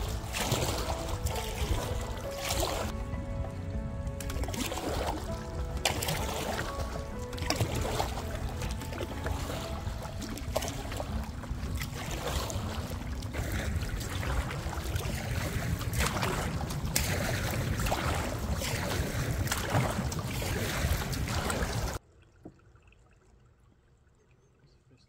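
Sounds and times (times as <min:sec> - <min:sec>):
water splashing around canoe: 0:00.0 - 0:23.9.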